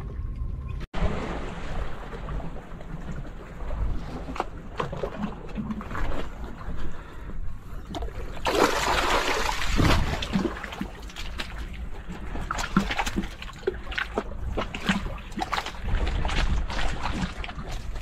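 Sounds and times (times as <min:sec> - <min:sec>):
net splashing out of water: 0:08.4 - 0:10.8.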